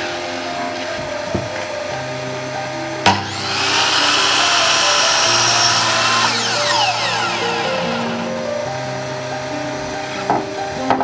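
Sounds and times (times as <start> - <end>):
background music with held notes: 0.0 - 11.0
mitre saw cutting wood: 2.1 - 8.4.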